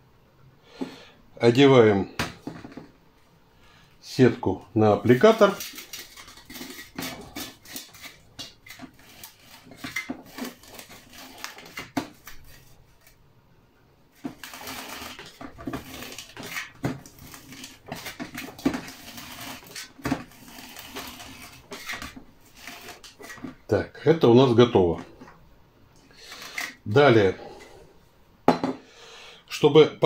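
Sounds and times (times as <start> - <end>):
net rustling on metal tube: 5.2 - 13.2.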